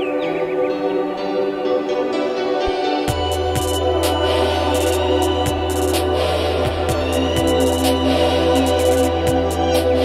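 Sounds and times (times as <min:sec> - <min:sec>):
electronic music: 0:00.0 - 0:10.0.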